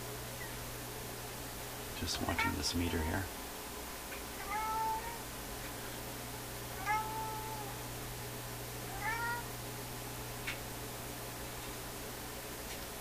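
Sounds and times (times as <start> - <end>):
steady low hum: 0.0 - 13.0
mewing animal cries: 2.2 - 3.2, 4.4 - 5.3, 6.8 - 7.8, 8.9 - 9.6.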